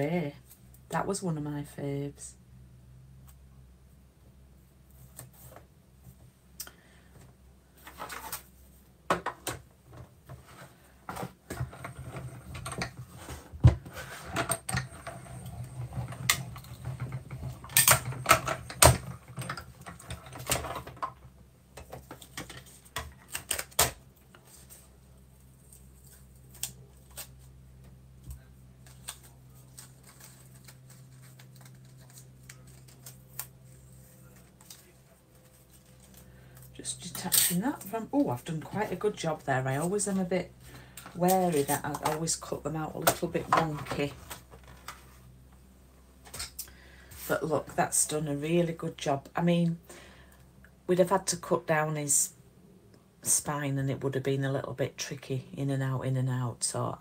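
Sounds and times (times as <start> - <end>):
paper rustling: 28.8 - 36.6.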